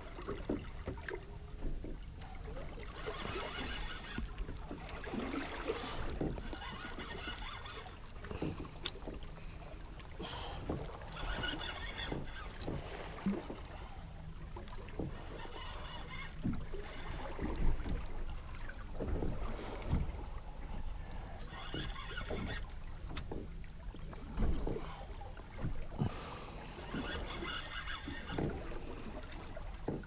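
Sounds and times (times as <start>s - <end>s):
water lapping against boat hull: 0.0s - 30.0s.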